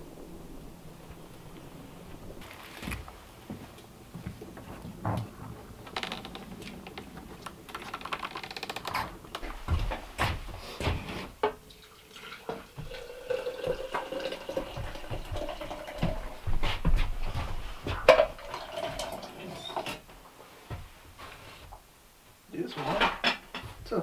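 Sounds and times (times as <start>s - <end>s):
clicks and knocks: 5.0s - 10.4s
water poured into a container: 11.7s - 16.4s, 18.2s - 19.9s.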